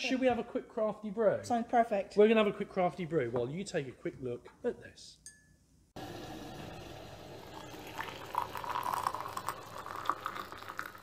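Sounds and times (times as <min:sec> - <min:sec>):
tea pouring into a cup: 0:06.0 - 0:11.0.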